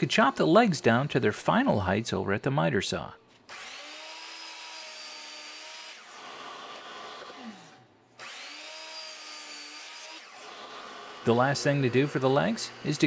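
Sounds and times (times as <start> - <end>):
saw cutting through wood: 3.4 - 13.0
miter saw whining: 3.5 - 13.0.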